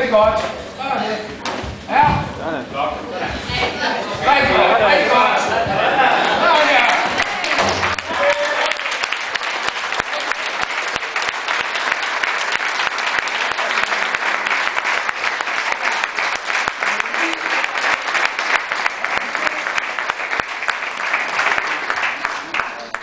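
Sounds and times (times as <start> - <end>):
crowd applauding: 5.1 - 23.0.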